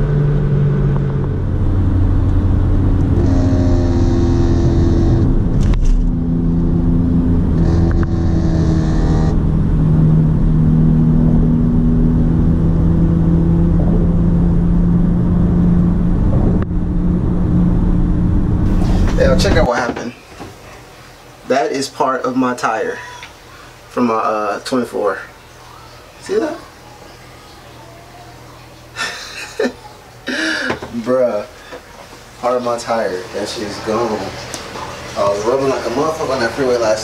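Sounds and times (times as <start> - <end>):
car engine drone: 0.0 - 19.7
road noise: 0.0 - 21.5.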